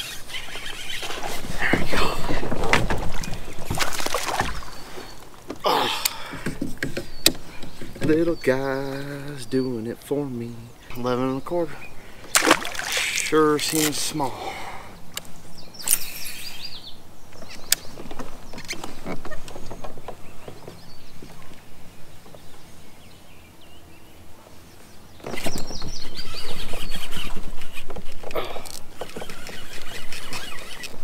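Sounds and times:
small birds singing: 0.0s - 31.0s
rush of water: 12.3s - 13.4s.

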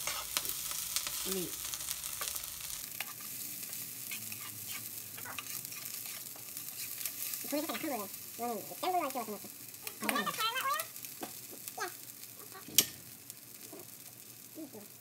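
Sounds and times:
spatula scraping and tapping pan: 0.0s - 1.2s, 2.1s - 7.9s
onions sizzling in frying pan: 0.0s - 15.0s.

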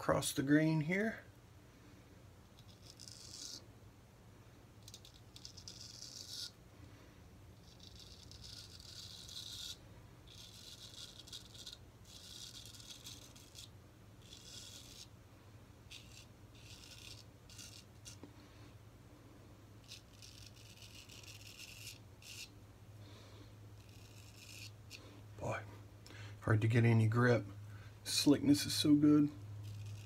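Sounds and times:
razor scraping beard stubble: 2.5s - 3.6s, 4.8s - 6.6s, 7.6s - 15.1s, 15.9s - 18.3s, 19.8s - 22.5s, 23.8s - 25.0s, 28.8s - 30.0s.

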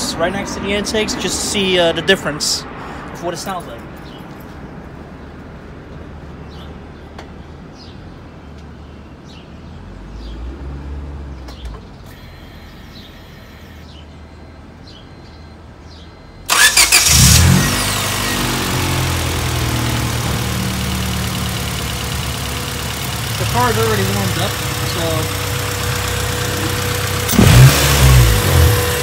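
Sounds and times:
car engine starting and idling: 16.4s - 29.0s.

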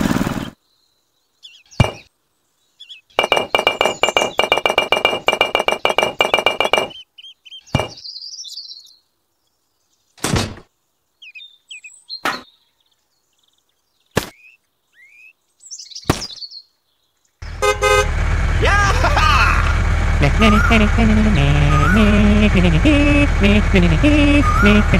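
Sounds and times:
bird chirps: 0.4s - 10.2s, 11.0s - 17.4s.

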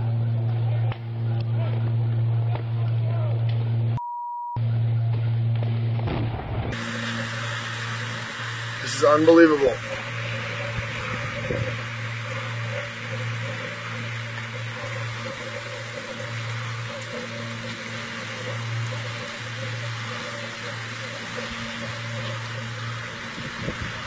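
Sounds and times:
low electrical hum: 0.0s - 4.0s, 4.6s - 24.0s
electrical arcing sizzling hiss: 6.0s - 24.0s.

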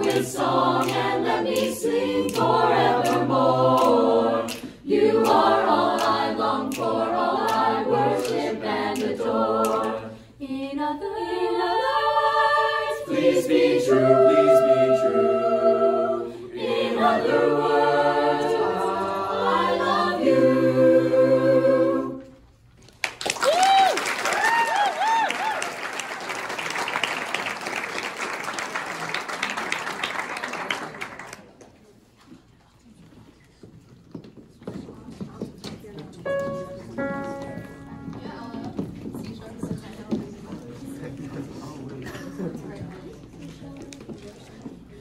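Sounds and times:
a cappella group singing: 0.0s - 22.6s.

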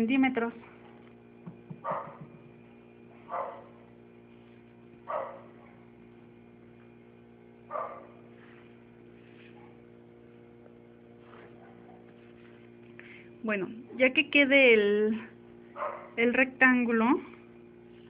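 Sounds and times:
steady electrical hum: 0.0s - 18.0s
dog barking: 1.8s - 2.3s, 3.2s - 3.8s, 5.1s - 5.9s, 7.7s - 8.2s, 11.5s - 12.1s, 15.8s - 16.2s.

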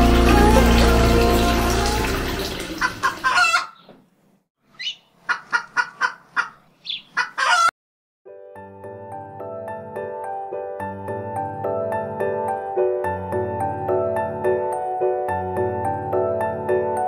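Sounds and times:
music: 0.0s - 2.6s, 8.3s - 17.0s
soft music: 0.0s - 2.8s, 8.3s - 17.0s
running water: 0.0s - 3.5s
chicken clucking: 2.8s - 3.9s, 4.8s - 7.7s.

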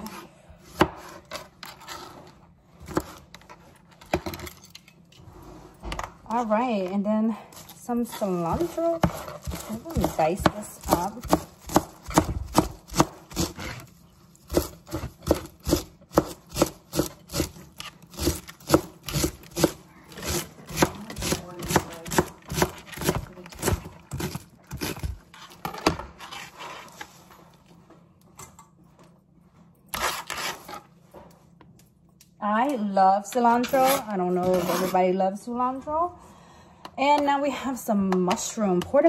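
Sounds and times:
knife chopping on cutting board: 0.0s - 1.5s, 8.5s - 26.5s.

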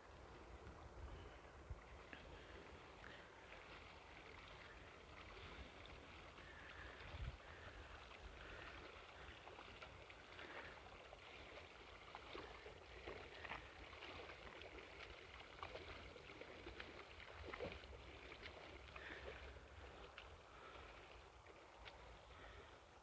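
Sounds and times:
paddle splashing in water: 0.1s - 22.9s
wind rumble on microphone: 6.8s - 8.8s.

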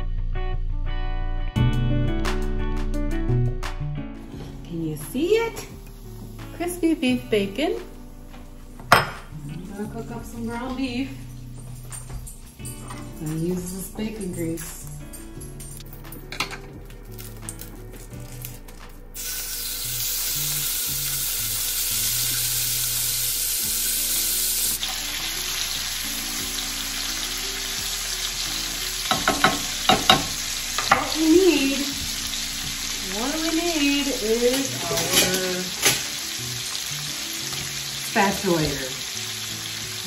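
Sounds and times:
meat sizzling in a pan: 4.2s - 10.9s, 19.1s - 40.0s.

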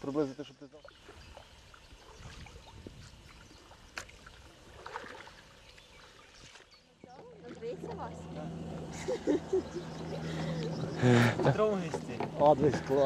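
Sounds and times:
water lapping around a boat: 0.0s - 13.0s.

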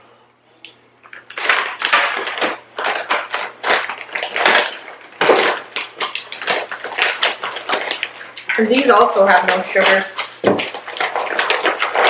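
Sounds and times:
plastic snack bag crinkling: 1.0s - 12.0s.

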